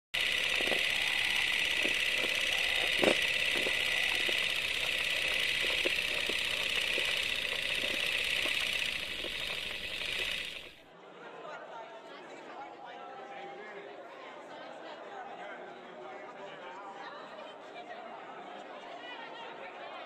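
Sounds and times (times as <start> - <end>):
steady high film hiss: 0.2 - 10.8.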